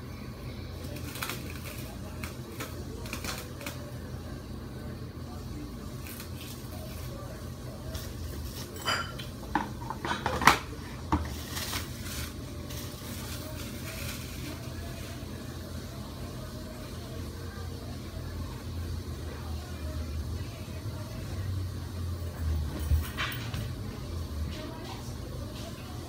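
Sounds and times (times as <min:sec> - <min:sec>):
cling wrap crinkling: 0:00.8 - 0:03.9, 0:11.3 - 0:15.4.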